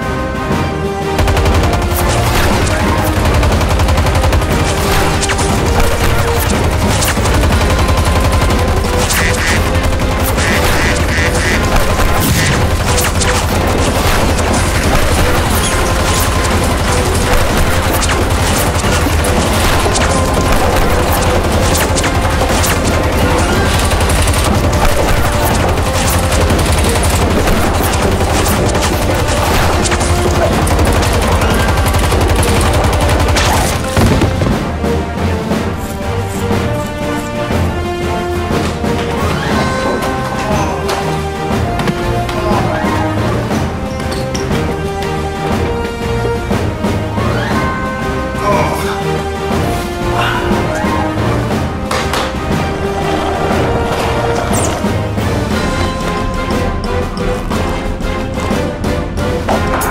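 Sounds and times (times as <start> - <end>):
background music: 0.0 - 59.9
rapid automatic gunfire: 1.2 - 34.8.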